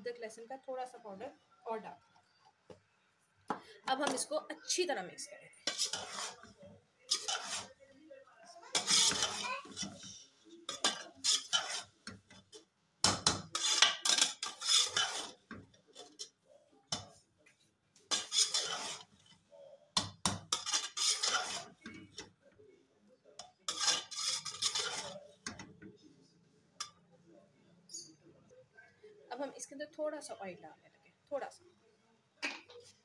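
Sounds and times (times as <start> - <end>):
metal spoon scraping a pot: 5.6 - 7.8, 8.7 - 17.2, 18.1 - 22.4, 23.4 - 25.8.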